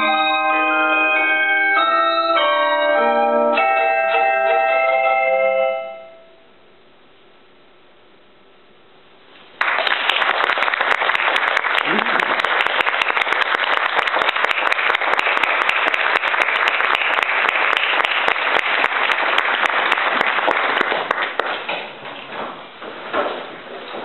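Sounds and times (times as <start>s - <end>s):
audience applauding: 9.6s - 22.3s.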